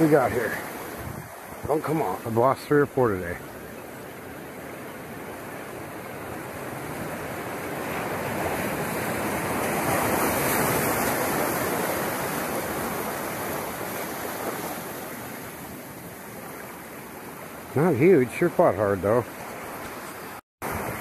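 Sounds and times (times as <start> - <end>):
ocean surf washing over rocks: 0.0 - 21.0.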